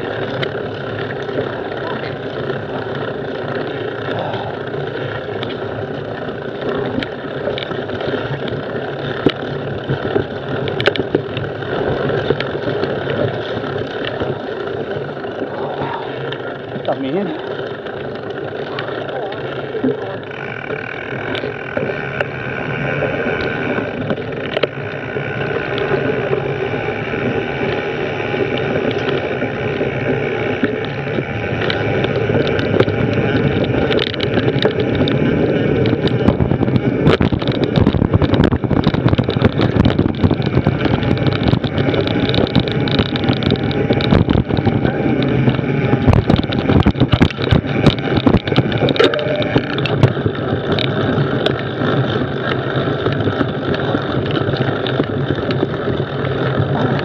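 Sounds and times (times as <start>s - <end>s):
bike rattling over bumps: 0.0s - 57.0s
bike tyre and drivetrain noise: 0.0s - 57.0s
wind on microphone: 19.8s - 57.0s.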